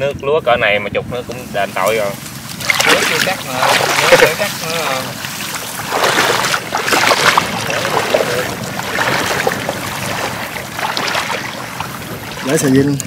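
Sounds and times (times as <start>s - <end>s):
person wading through water: 2.2s - 13.0s
plastic tub dragged through water: 2.6s - 12.9s.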